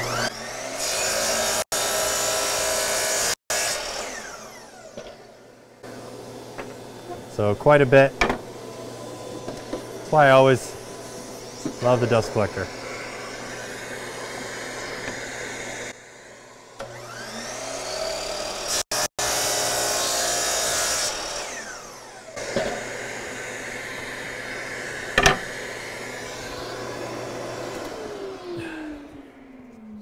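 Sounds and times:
miter saw motor spinning: 0:00.0 - 0:02.8, 0:16.8 - 0:30.0
saw blade cutting wood: 0:00.0 - 0:05.3, 0:16.8 - 0:28.4.

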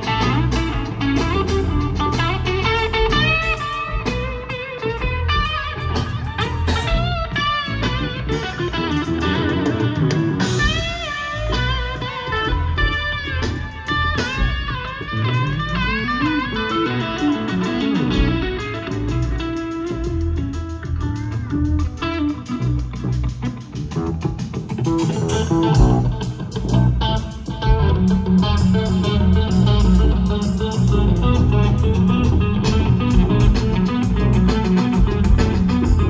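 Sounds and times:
bass guitar: 0:00.0 - 0:36.0
drums: 0:00.0 - 0:36.0
electric guitar solo: 0:00.0 - 0:36.0.

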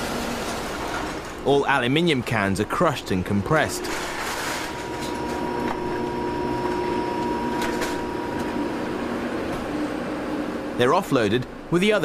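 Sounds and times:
can crushing machine whine: 0:03.2 - 0:09.8.

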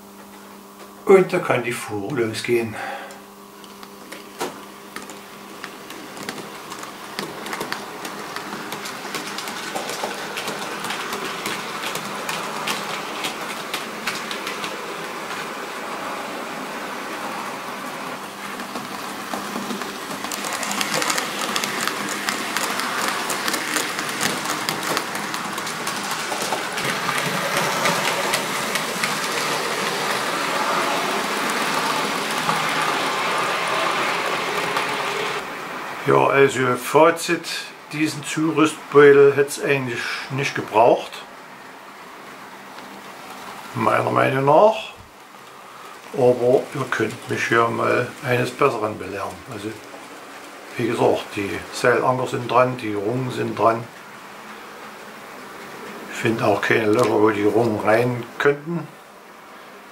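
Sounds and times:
model train wheels rattling: 0:05.0 - 0:35.4.

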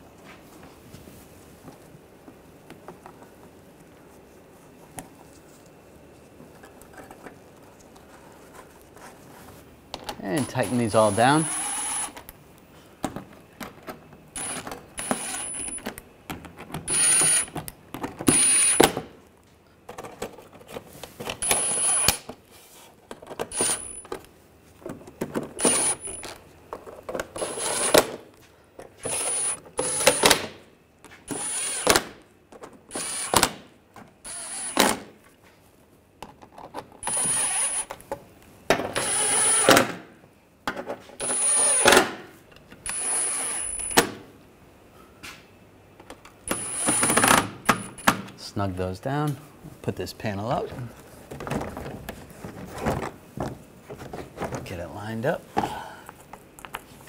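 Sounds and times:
cordless power driver spinning bolts: 0:25.6 - 0:26.3.

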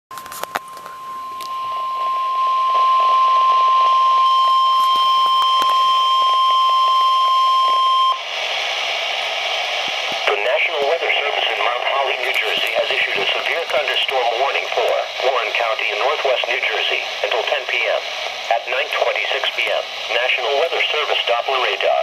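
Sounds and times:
radio hiss: 0:00.2 - 0:22.0
weather radio alert tone: 0:00.5 - 0:08.2
broadcast voice: 0:10.2 - 0:22.0.

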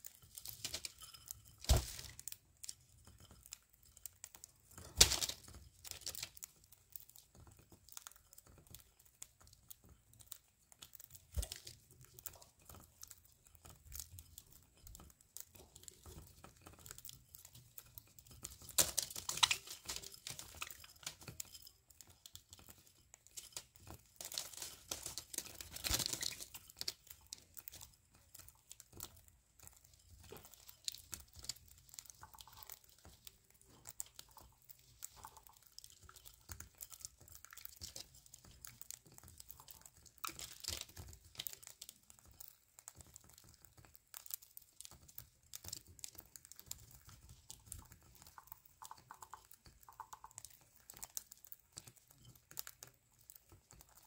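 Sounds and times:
birds cracking seed: 0:18.6 - 0:21.3.

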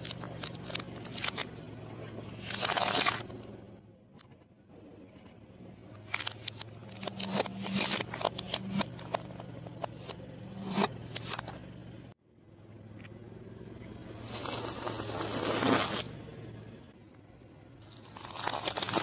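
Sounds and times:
car engine humming: 0:00.0 - 0:18.0
plastic cracking under tyre: 0:17.9 - 0:19.0.

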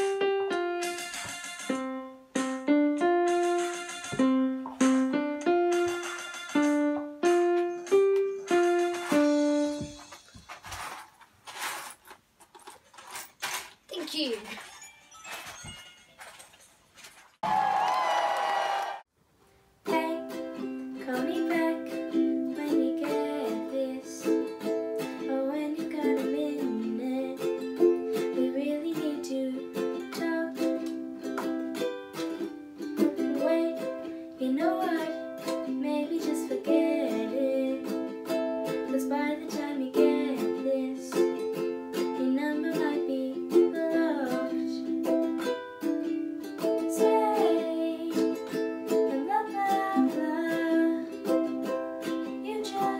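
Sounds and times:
ukulele strumming chords: 0:00.0 - 0:10.1, 0:19.8 - 0:52.9
young woman singing: 0:19.9 - 0:24.5, 0:25.2 - 0:27.6, 0:28.3 - 0:30.8, 0:33.1 - 0:38.1, 0:38.9 - 0:41.3, 0:42.2 - 0:44.9, 0:46.9 - 0:48.4, 0:49.0 - 0:51.2, 0:52.3 - 0:52.9.

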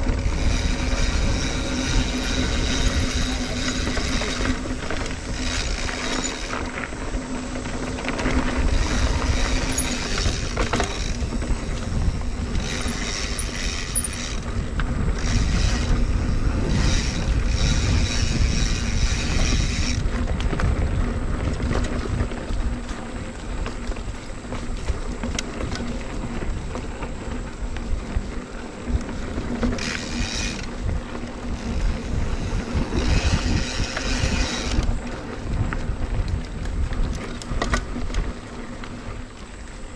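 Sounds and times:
freehub ratcheting buzz: 0:00.0 - 0:20.2, 0:29.6 - 0:35.0
bike tyres rumbling and rattling: 0:00.0 - 0:39.9
wind on microphone: 0:00.0 - 0:39.9.

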